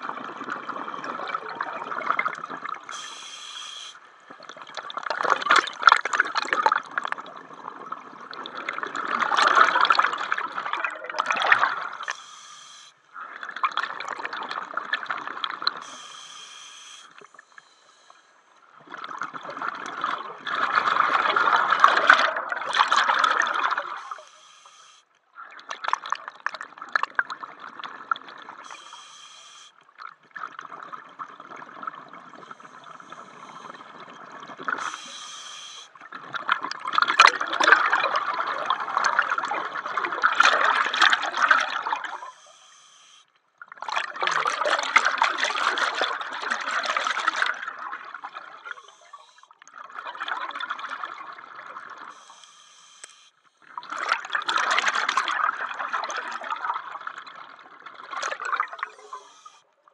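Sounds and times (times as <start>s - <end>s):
bubbles rushing out: 0.0s - 2.9s, 4.4s - 12.0s, 18.9s - 24.0s, 36.1s - 42.2s, 43.7s - 48.8s, 49.7s - 52.1s, 53.8s - 59.4s
regulator inhalation hiss: 2.9s - 4.0s, 12.0s - 13.0s, 15.8s - 18.3s, 24.0s - 25.1s, 28.7s - 29.8s, 34.8s - 36.0s, 42.2s - 43.3s, 52.2s - 53.4s, 58.9s - 59.6s.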